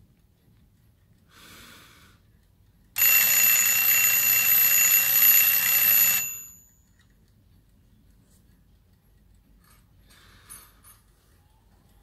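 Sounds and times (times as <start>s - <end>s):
clock alarm ringing rapidly: 3.0s - 6.7s.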